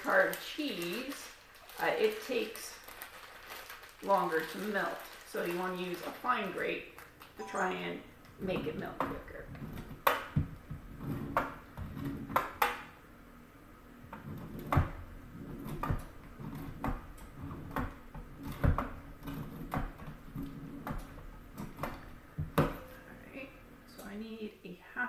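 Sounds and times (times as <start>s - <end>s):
cheese grating on metal grater: 14.2s - 20.9s.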